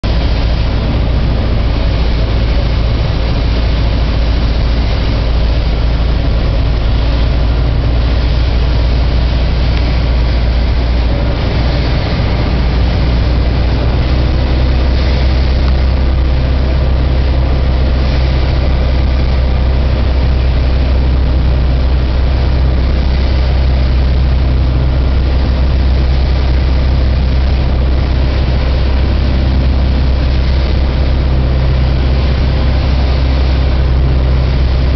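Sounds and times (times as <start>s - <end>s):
propeller plane engine drone: 0.0s - 34.9s.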